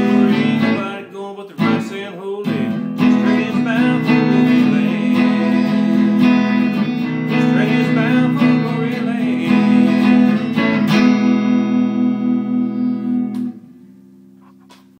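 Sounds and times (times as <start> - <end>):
electric guitar strumming: 0.0 - 14.9.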